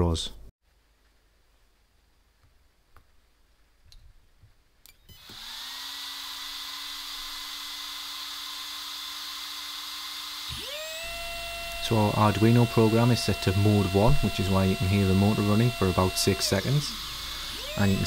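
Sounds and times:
small cooling fan whirring: 5.1 - 18.0.

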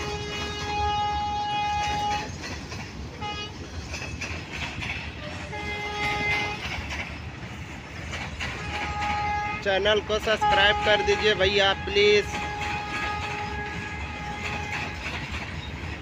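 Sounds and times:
train horn blasts: 0.0 - 2.3, 3.2 - 3.6, 5.2 - 6.8, 8.5 - 15.1
freight train rumbling past: 0.0 - 16.0.

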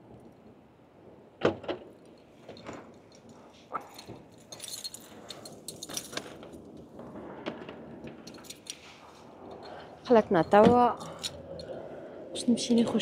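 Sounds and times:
light clinking and jingling: 2.0 - 6.8, 8.2 - 11.8.

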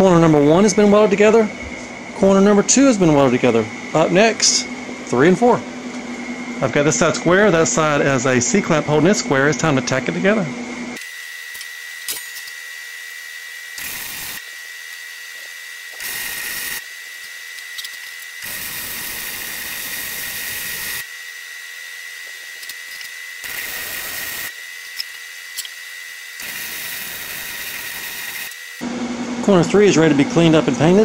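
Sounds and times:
thin high whine: 0.0 - 31.0
welding arc crackle: 11.0 - 28.8.

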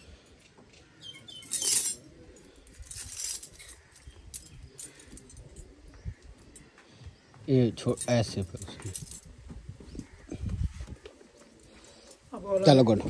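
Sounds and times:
metal tether jangling: 1.3 - 5.7, 7.9 - 9.3.

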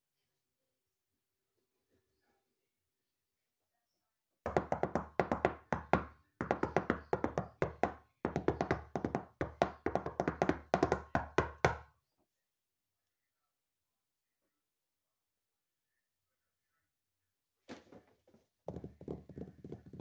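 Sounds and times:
rapid knocking: 4.5 - 11.8.

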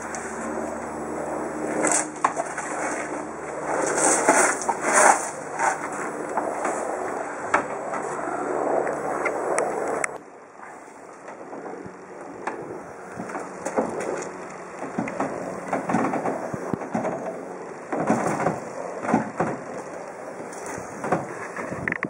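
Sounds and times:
steady rushing noise: 0.0 - 22.0
knocks creaks and scraping: 1.6 - 10.2, 11.2 - 22.0.

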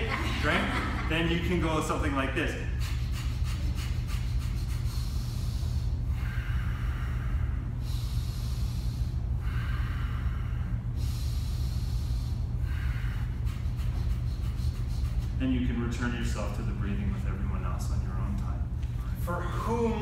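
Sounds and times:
air conditioner hum: 0.0 - 20.0
man breathing through nose: 2.7 - 15.4.

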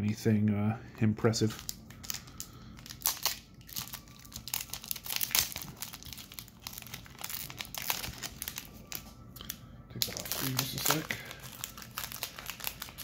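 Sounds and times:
wrapper crinkling and tearing: 1.4 - 13.0.

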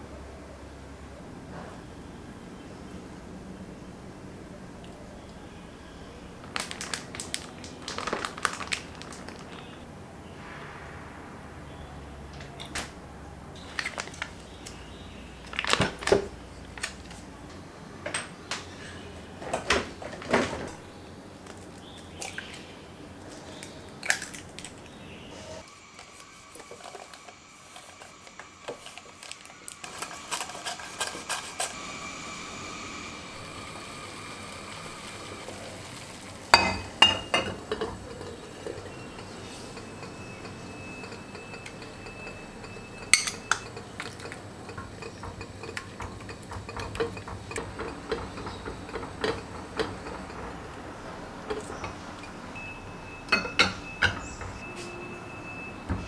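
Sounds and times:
utensils clinking against dishes: 36.5 - 55.7.

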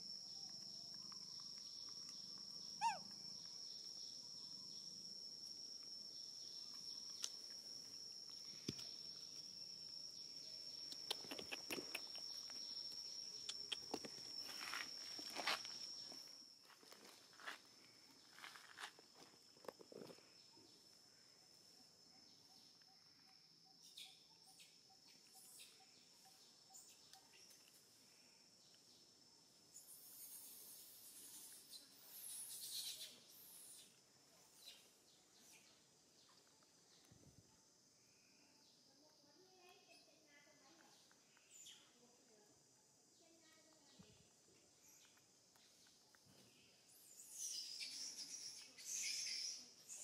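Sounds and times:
high-pitched insect drone: 0.0 - 34.0, 46.5 - 50.0
sharp clicks: 10.9 - 12.5.

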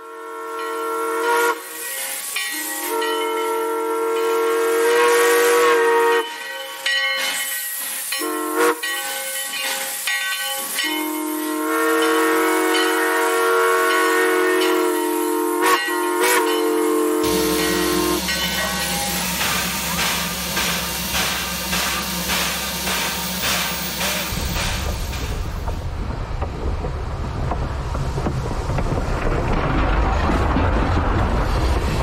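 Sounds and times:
steam locomotive whistle: 0.0 - 9.5, 10.6 - 24.4
steam hissing: 0.2 - 26.1.

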